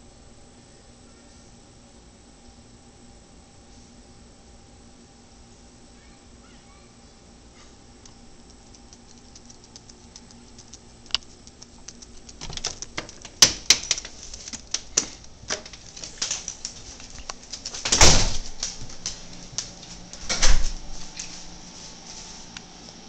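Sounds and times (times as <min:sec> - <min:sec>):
irregular sharp clicks and taps: 0:08.0 - 0:17.7.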